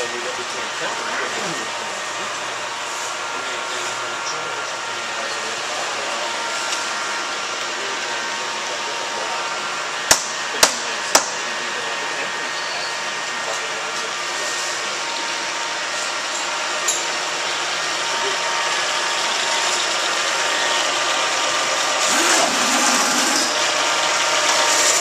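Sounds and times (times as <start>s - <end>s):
shop machinery humming: 0.0s - 25.0s
mallet tapping workpiece: 10.1s - 11.3s.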